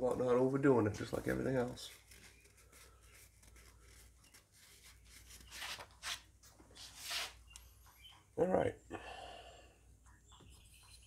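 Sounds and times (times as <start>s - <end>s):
hands scuffing small parts: 4.3s - 7.4s.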